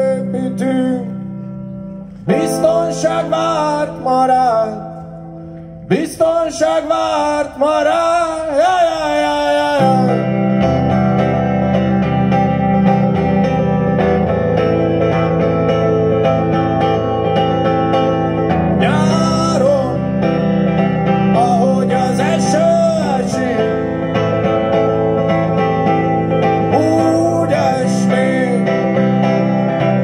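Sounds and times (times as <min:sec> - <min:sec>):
plucked guitar: 0:00.0 - 0:30.0
sustained low chords: 0:09.9 - 0:30.0.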